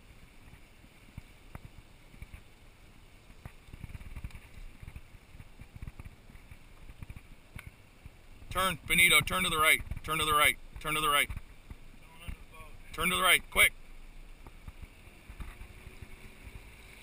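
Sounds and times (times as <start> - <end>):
boat engine rumble: 0.0 - 17.0
wind buffeting microphone: 3.2 - 12.9.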